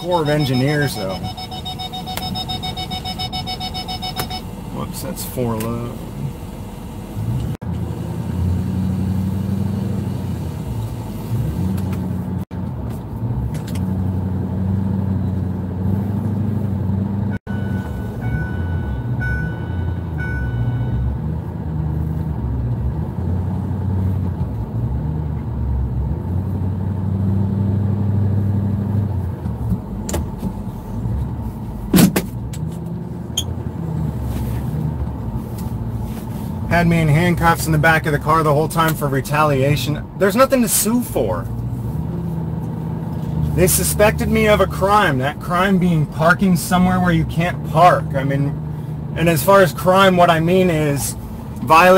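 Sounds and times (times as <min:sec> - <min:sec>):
short high beeps: 0:00.0 - 0:04.5, 0:17.5 - 0:21.1
truck engine revving while driving: 0:07.1 - 0:51.9.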